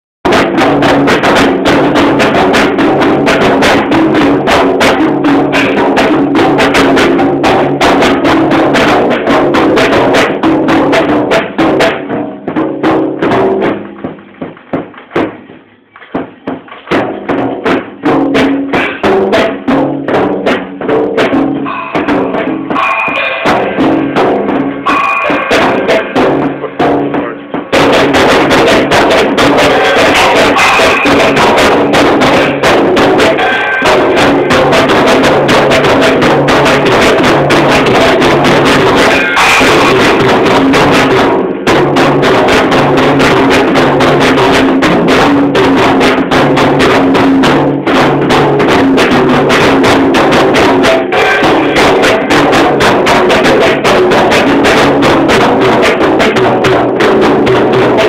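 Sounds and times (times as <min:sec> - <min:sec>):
drum kit fast hits: 0:00.2 - 0:58.0
music with sustained tones: 0:21.6 - 0:26.2.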